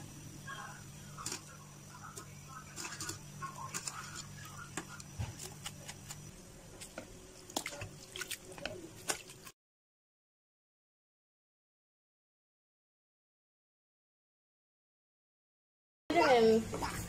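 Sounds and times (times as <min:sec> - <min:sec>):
water dripping and pattering: 0:06.9 - 0:09.5.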